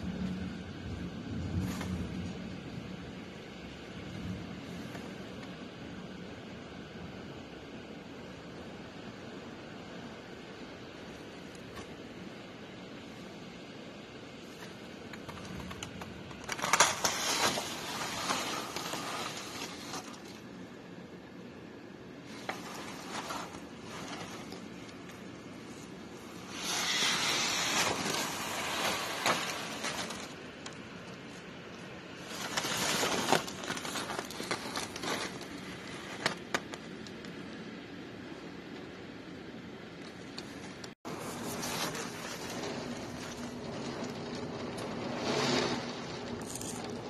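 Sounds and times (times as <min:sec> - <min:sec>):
heavy rain and wind: 0:00.0 - 0:37.8, 0:40.3 - 0:47.0
rapid crackling clatter: 0:14.5 - 0:20.5, 0:22.3 - 0:31.4, 0:32.1 - 0:37.4, 0:41.1 - 0:47.0.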